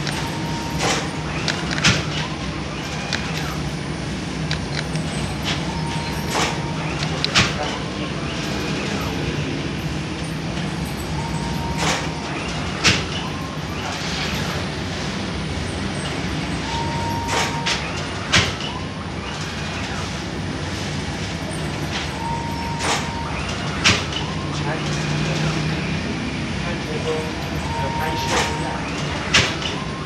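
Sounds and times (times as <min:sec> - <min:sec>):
machinery low hum: 0:00.0 - 0:30.0
short steady high tone: 0:27.7 - 0:28.8.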